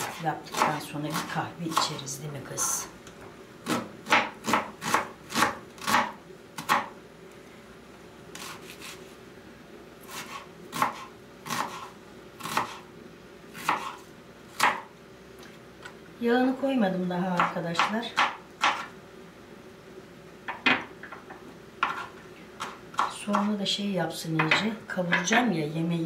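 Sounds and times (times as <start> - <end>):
knife chopping on cutting board: 0.0 - 2.0, 3.6 - 6.9, 10.1 - 12.8, 13.6 - 14.9, 17.4 - 18.9, 21.8 - 23.5.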